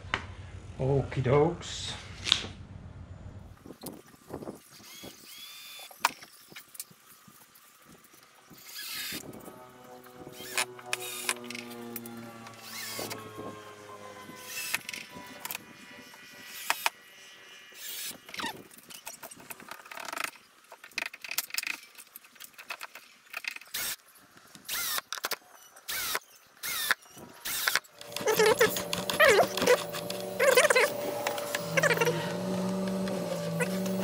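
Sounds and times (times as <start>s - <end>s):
metal fittings clicking and squeaking: 17.8s - 24.0s, 24.9s - 34.0s
steady hum: 27.9s - 34.0s.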